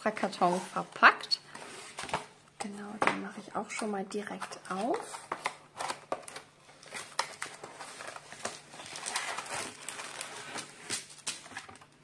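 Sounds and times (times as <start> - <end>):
plastic packets crinkling: 4.9 - 12.0
cardboard box being opened: 6.8 - 11.2.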